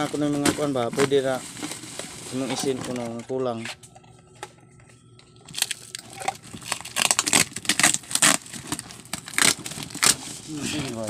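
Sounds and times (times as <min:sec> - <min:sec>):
packing tape ripping off cardboard: 0:05.5 - 0:11.0.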